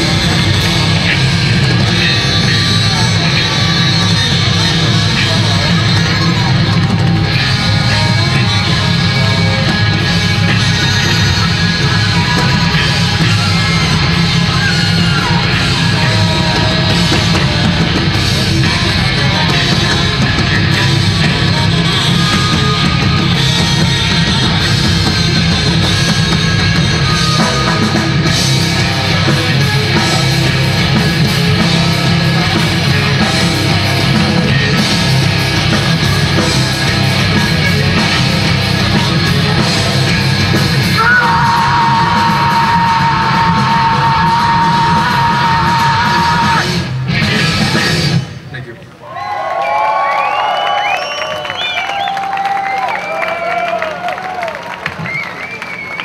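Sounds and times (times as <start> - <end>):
bass guitar: 0.0 - 49.0
distorted electric guitars: 0.0 - 49.0
drums: 0.0 - 56.0
person yelling vocals: 40.8 - 46.7.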